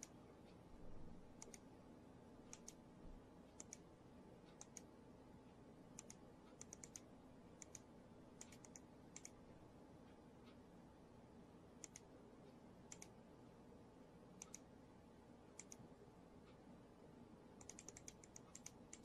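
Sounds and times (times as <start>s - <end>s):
computer mouse clicks: 1.3s - 1.7s, 2.4s - 2.8s, 3.5s - 4.9s, 6.0s - 9.4s, 11.8s - 13.2s, 14.4s - 14.7s, 15.6s - 15.9s, 17.6s - 19.0s.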